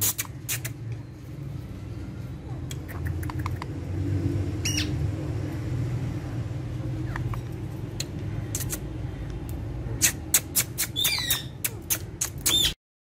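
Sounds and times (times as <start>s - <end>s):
parrots squawking: 4.6s - 5.0s, 10.0s - 12.8s.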